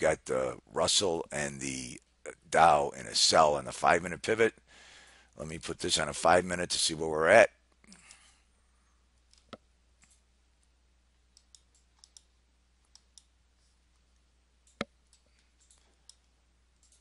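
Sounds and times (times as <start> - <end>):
computer mouse clicks: 9.2 - 10.2, 11.3 - 13.3, 14.6 - 17.0.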